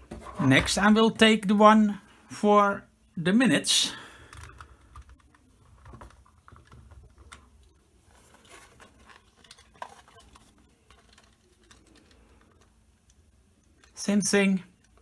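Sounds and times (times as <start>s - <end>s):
hands rubbing plastic: 4.5s - 13.2s.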